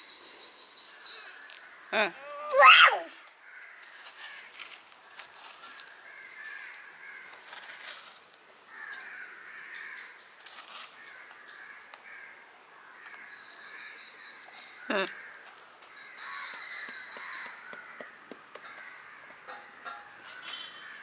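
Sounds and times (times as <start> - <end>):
crows cawing: 3.4 - 4.8, 5.5 - 7.4, 8.7 - 10.1, 11.0 - 13.3, 14.8 - 21.0.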